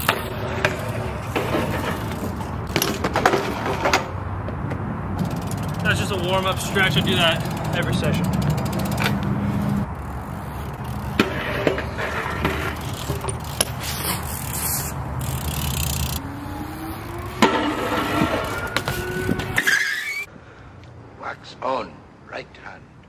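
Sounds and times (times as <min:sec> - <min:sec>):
bike pegs clacking on concrete: 0:00.0 - 0:20.3
bike tyres rumbling on concrete: 0:00.0 - 0:20.3
faint rising whine: 0:14.5 - 0:20.3.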